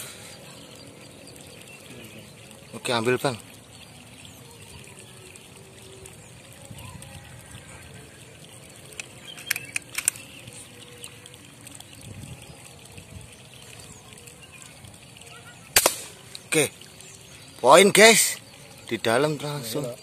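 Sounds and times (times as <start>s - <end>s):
faint outdoor background noise: 0.0s - 20.0s
sharp clicks: 8.9s - 10.4s, 15.8s - 16.5s.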